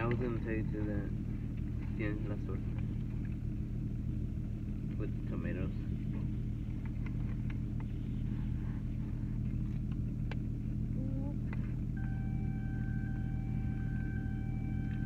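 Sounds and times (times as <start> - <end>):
car engine idling: 0.0 - 15.0
high electronic tone: 12.0 - 15.0.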